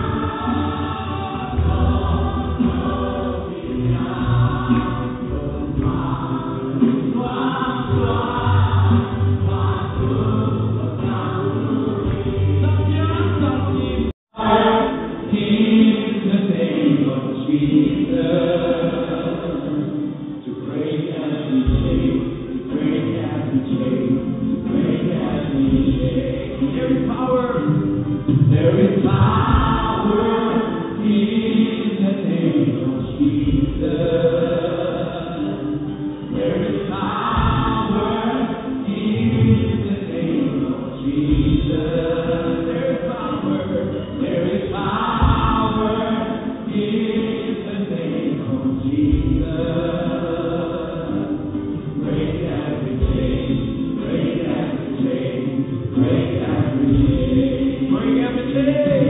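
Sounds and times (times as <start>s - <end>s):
choir singing worship song: 0.0s - 59.0s.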